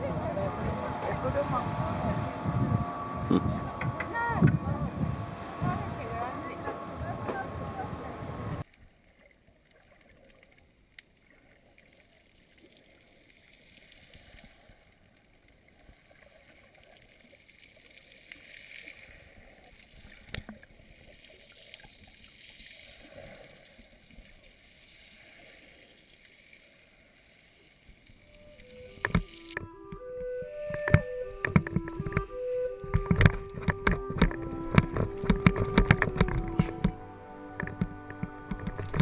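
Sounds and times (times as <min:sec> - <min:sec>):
sharp clicks: 0:30.7 - 0:39.0.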